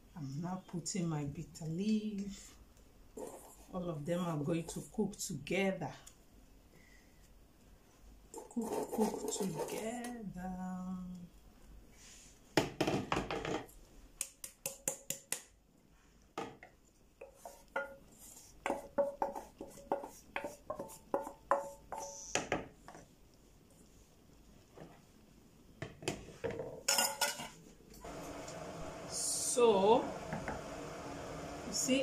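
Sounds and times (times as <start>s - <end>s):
utensil tapping in a steel bowl: 14.2s - 15.6s, 18.6s - 22.2s.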